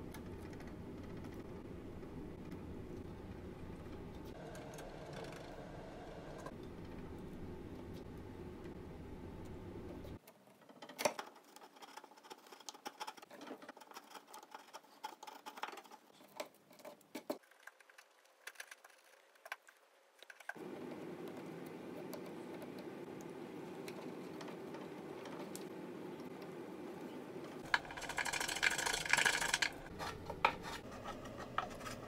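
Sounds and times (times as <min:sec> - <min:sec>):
faint background hum: 0:00.0 - 0:32.0.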